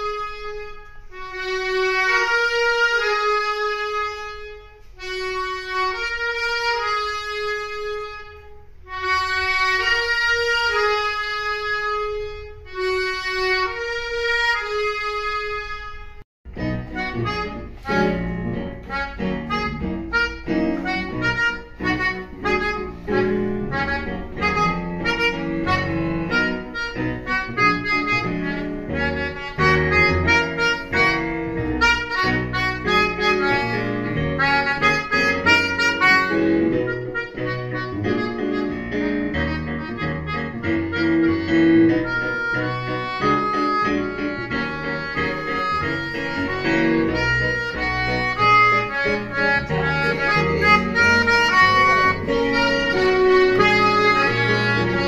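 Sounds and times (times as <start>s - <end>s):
melodicas playing together: 40.6s - 55.0s.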